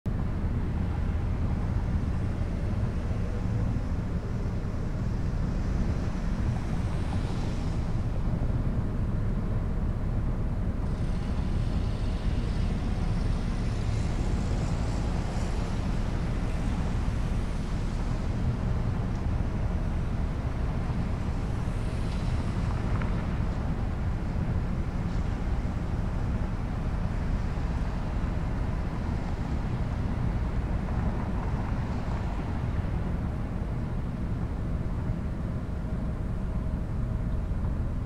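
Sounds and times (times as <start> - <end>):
road and wind noise: 0.1 - 38.0.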